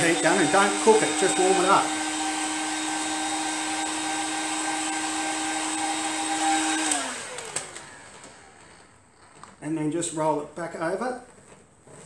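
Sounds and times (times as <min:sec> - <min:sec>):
fan winding down: 0:00.0 - 0:08.6.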